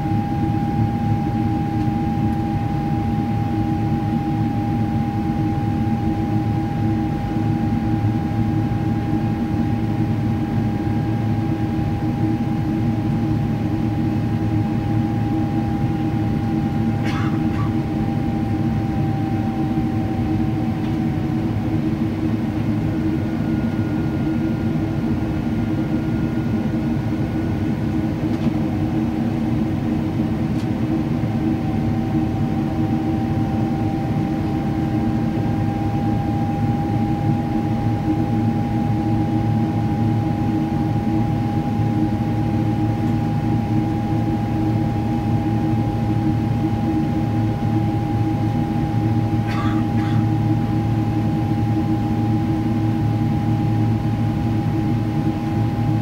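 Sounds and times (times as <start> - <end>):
high engine whine: 0.0 - 56.0
jet engine drone in cabin: 0.0 - 56.0.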